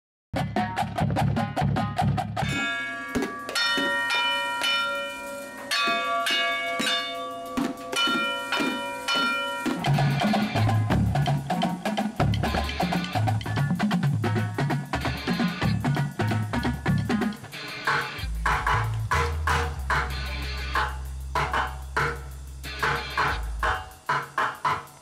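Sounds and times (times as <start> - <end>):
pots and pans struck with spoons: 2.4 - 13.6
marching bass drums rolling: 5.4 - 25.0
marching snare and tenor drums: 7.6 - 17.4, 18.4 - 20.2.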